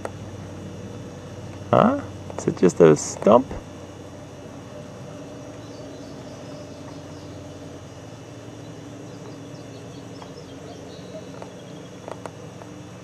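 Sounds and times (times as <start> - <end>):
low outdoor hum: 0.0 - 13.0
faint high chirping: 4.6 - 12.1.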